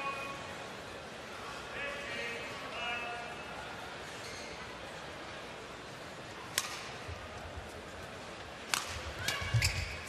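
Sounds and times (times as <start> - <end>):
racket hitting shuttlecock: 6.5 - 7.0, 8.7 - 10.0.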